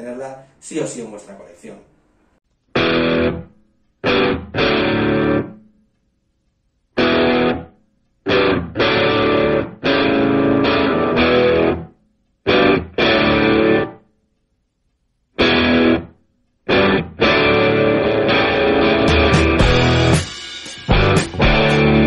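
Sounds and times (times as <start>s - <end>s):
distorted electric guitar riff: 2.7s - 5.6s, 7.0s - 14.0s, 15.4s - 16.1s, 16.7s - 22.0s.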